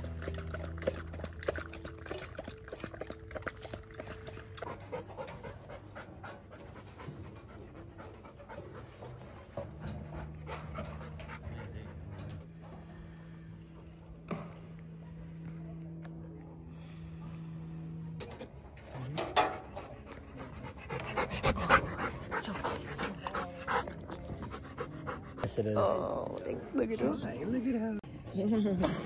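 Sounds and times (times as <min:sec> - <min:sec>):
soft background music: 0:00.0 - 0:28.4
dog panting: 0:00.2 - 0:12.5, 0:19.4 - 0:28.9.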